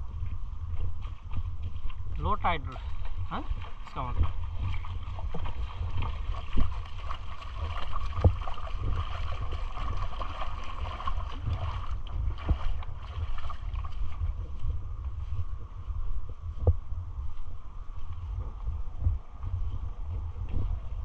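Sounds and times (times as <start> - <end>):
wind rumbling on microphone: 0.0 - 21.0
shallow water washing on shore: 2.6 - 14.4.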